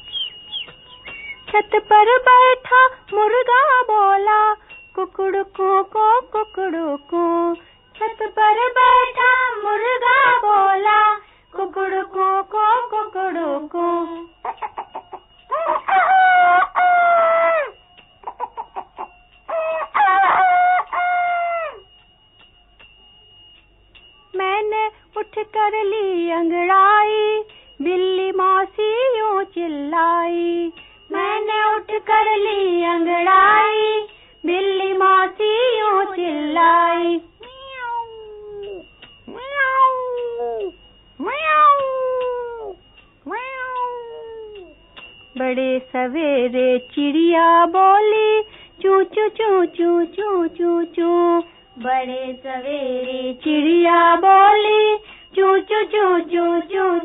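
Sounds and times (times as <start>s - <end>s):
rooster clucking: 14.4s - 16.9s, 18.2s - 20.9s
rooster crowing: 14.4s - 22.0s
cat meowing: 37.4s - 44.7s.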